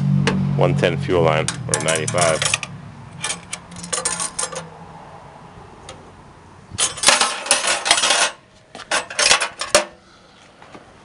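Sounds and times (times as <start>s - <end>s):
metal parts clinking together: 1.5s - 4.7s, 6.8s - 10.0s.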